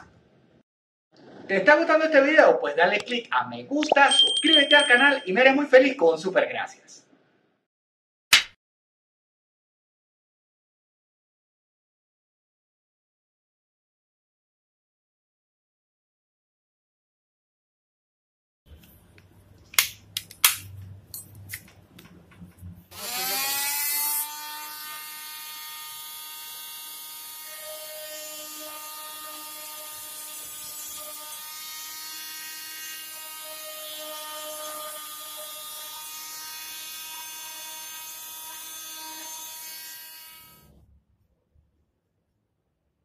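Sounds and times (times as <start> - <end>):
multi-tool motor buzzing: 22.9 - 40.8.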